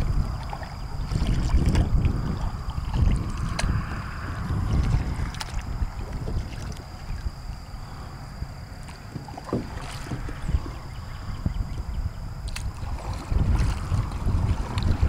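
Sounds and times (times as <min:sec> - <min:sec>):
paddle stroking through water: 0:00.0 - 0:03.9, 0:04.6 - 0:07.3, 0:08.8 - 0:11.3, 0:12.4 - 0:15.0
low rumble: 0:00.0 - 0:15.0.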